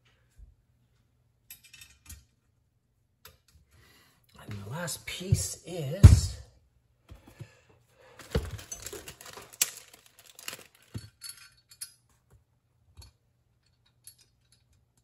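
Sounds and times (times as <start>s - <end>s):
metallic clinks and knocks: 1.5s - 2.3s, 8.6s - 12.2s, 13.0s - 15.0s
rustling: 8.1s - 10.9s.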